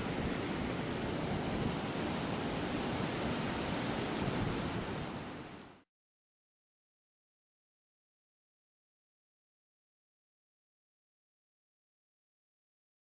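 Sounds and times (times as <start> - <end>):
wind on microphone: 0.0 - 5.8
surf breaking on a beach: 0.0 - 5.9.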